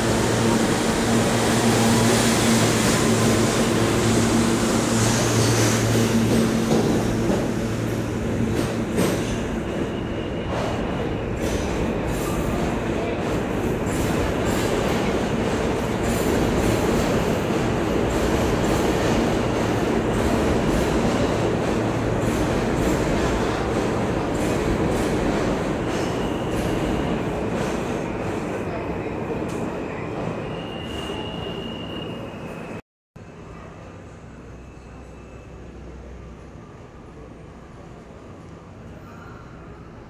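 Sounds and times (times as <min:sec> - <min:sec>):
train wheels rumbling on rails: 0:00.0 - 0:31.6.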